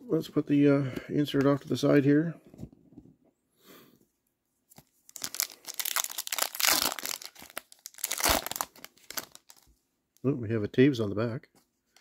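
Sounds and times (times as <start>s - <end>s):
foil pack tearing and crinkling: 5.1s - 9.6s.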